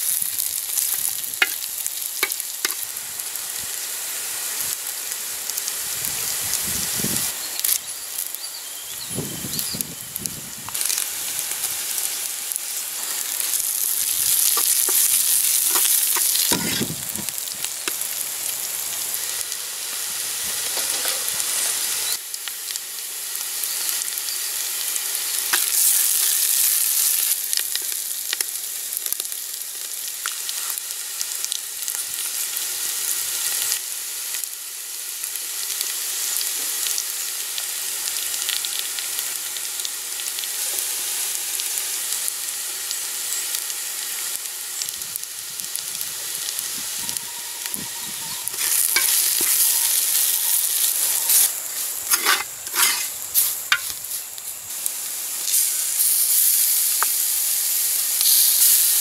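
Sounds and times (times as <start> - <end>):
food sizzling in hot oil: 0.0 - 59.0
wooden spoon scraping pot: 14.5 - 16.9, 48.3 - 50.5, 52.1 - 53.1.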